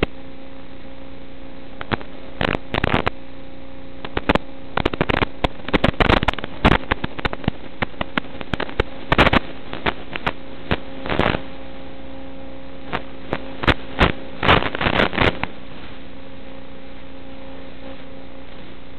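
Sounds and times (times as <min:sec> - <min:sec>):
crackling static clicks: 0:00.0 - 0:18.9
electrical hum and hiss: 0:00.0 - 0:18.9.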